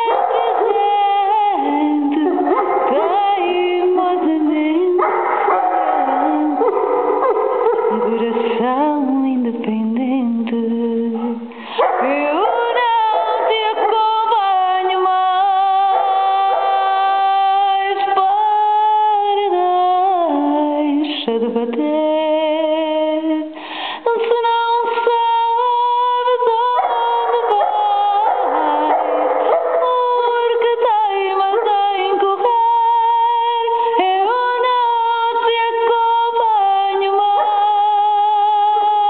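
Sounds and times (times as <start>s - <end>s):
dog howling: 0.0s - 3.8s, 5.0s - 8.5s, 11.2s - 17.8s, 26.5s - 32.3s, 37.3s - 39.0s
woman singing: 0.0s - 6.8s, 7.8s - 39.0s.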